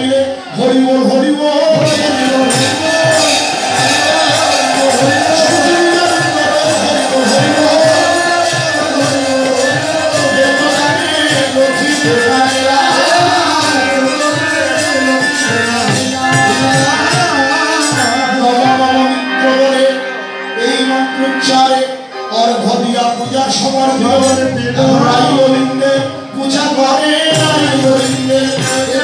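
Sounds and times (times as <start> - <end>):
voices singing: 0.8 - 19.7
drum beating steady rhythm: 1.6 - 19.1, 23.0 - 29.0
hand cymbals ringing: 1.8 - 18.2.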